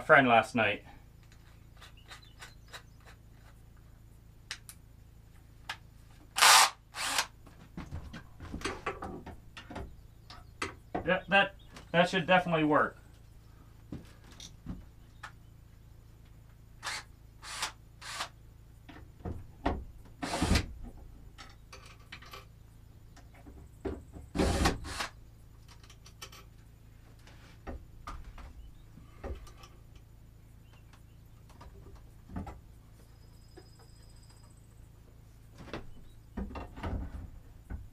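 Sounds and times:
cordless drill driving screws: 0:06.4 - 0:07.3, 0:16.8 - 0:18.3, 0:20.2 - 0:20.6, 0:24.4 - 0:25.2.

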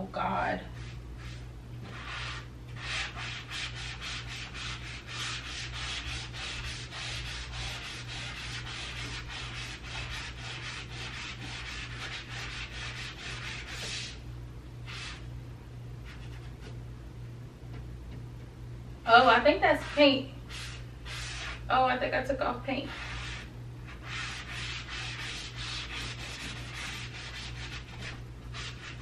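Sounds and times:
foam eraser scrubbing a wall: 0:00.7 - 0:14.2, 0:14.8 - 0:15.3, 0:19.7 - 0:21.6, 0:22.8 - 0:29.0.

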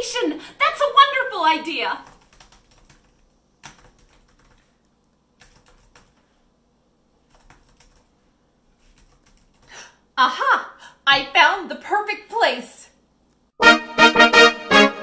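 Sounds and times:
typing on laptop keyboard: 0:02.0 - 0:06.3, 0:07.2 - 0:08.1, 0:08.8 - 0:09.8.

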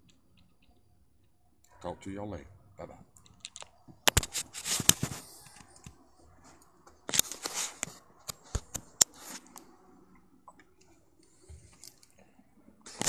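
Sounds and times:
rubbing scrapes on microphone: 0:04.2 - 0:05.7, 0:07.1 - 0:09.6.

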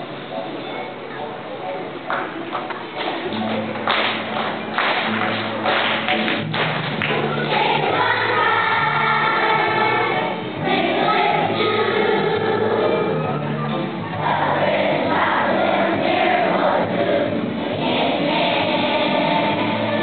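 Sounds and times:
children's choir singing: 0:07.0 - 0:20.0.

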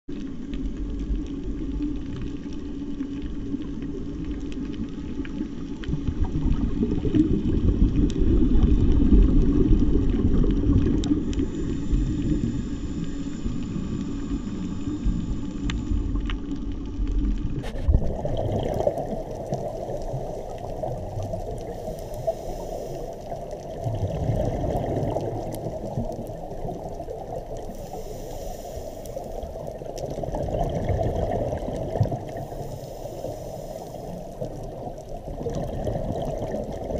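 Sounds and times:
muffled underwater rush: 0:00.1 - 0:36.9
regulator exhaust bubbles gurgling: 0:17.5 - 0:22.5, 0:23.4 - 0:27.8, 0:29.5 - 0:32.6, 0:34.2 - 0:36.9.

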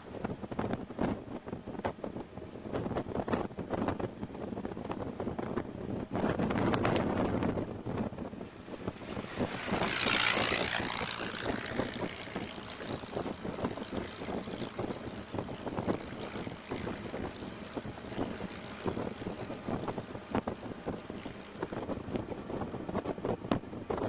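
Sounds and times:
wind on microphone: 0:00.0 - 0:24.0
old car engine running: 0:08.3 - 0:22.9.

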